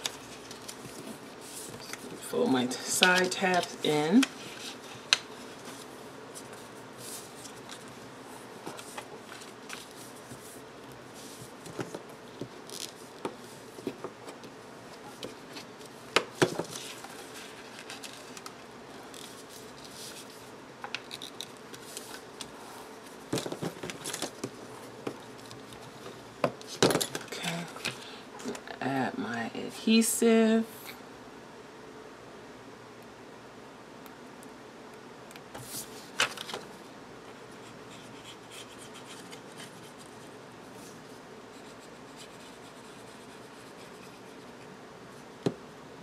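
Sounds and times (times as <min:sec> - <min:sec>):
paper rustling and crinkling: 0:00.0 - 0:08.0, 0:08.6 - 0:10.6, 0:15.0 - 0:28.0, 0:35.6 - 0:36.7.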